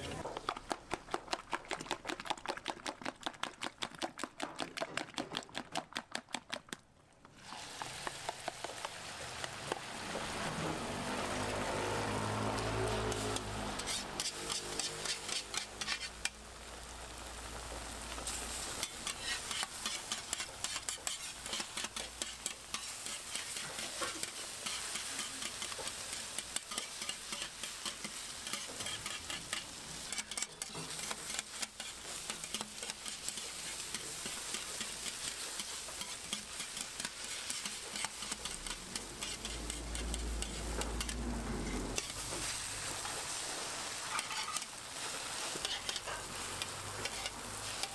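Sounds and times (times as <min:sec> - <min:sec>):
food sizzling in oil on griddle: 0:07.4 - 0:47.9
metal spatulas scraping griddle: 0:12.5 - 0:16.4, 0:18.3 - 0:47.9.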